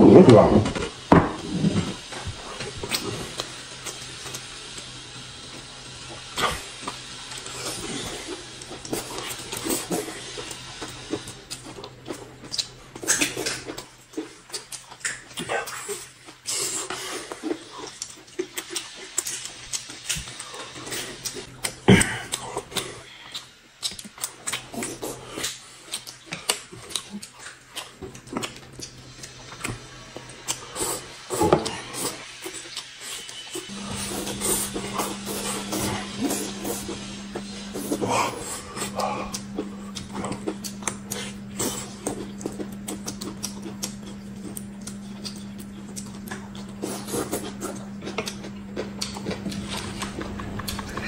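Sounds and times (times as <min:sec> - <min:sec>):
wet smacking chewing: 0:06.4 - 0:30.6, 0:34.2 - 0:51.0
slurping noodles: 0:30.5 - 0:45.3, 0:46.5 - 0:48.4.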